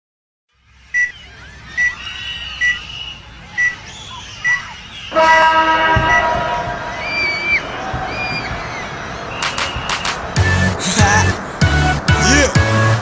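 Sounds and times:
music: 9.4 - 13.0.

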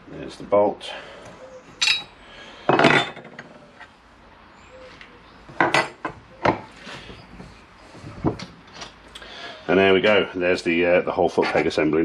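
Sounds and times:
metal tools clattering on workbench: 1.8 - 2.1, 2.7 - 3.6.

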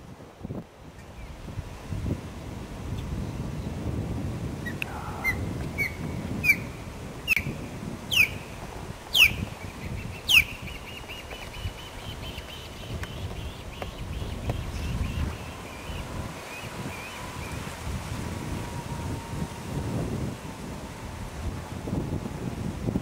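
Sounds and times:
wind rumble on microphone: 0.0 - 23.0
osprey whistling calls: 4.6 - 17.7.

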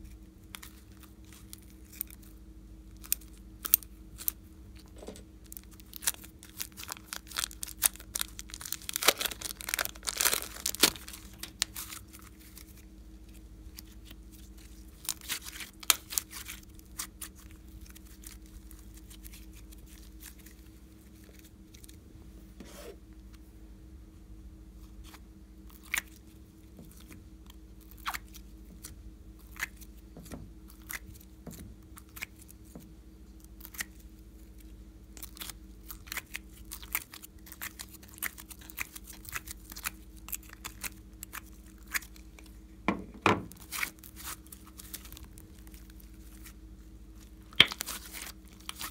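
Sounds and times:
slime crackling and popping: 5.5 - 20.6, 35.2 - 42.5, 47.2 - 48.9.

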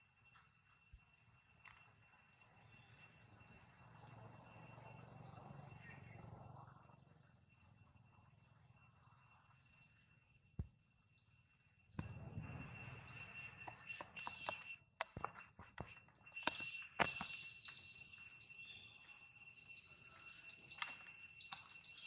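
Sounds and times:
steady high drone: 12.0 - 14.6
buzzy high-pitched chirps: 16.3 - 22.0.

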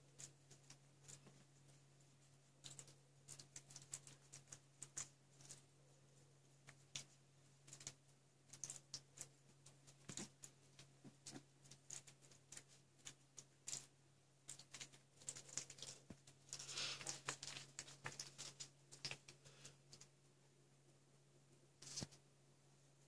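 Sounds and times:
puppies rustling and snuffling: 15.3 - 19.4.

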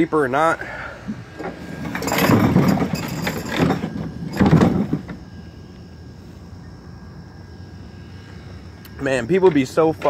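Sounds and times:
low background hum: 0.0 - 10.0
rustling and scraping: 1.1 - 5.3.

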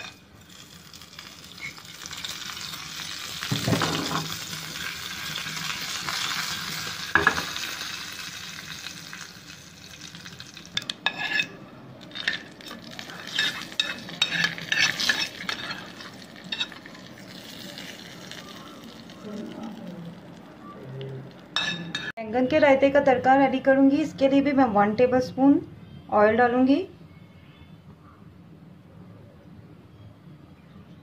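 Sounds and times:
spices sizzling in hot oil: 0.0 - 22.1
spoon clinks and scrapes: 10.8 - 12.5, 13.2 - 16.8.

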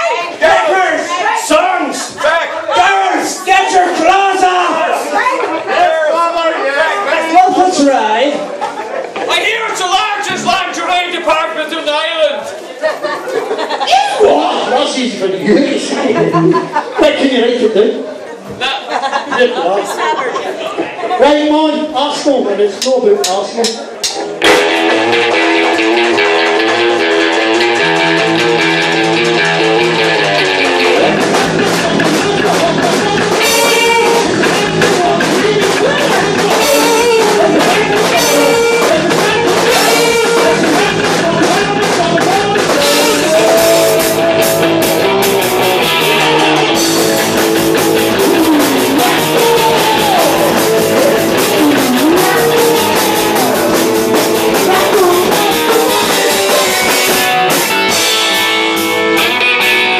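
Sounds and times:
drum kit: 9.7 - 11.3, 23.2 - 59.9
electric bass: 24.4 - 59.9
electric guitar: 24.4 - 59.9
man singing into a microphone: 36.6 - 44.6.

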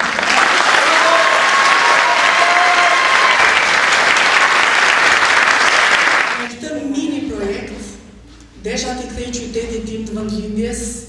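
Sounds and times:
audience applause: 0.0 - 6.5.

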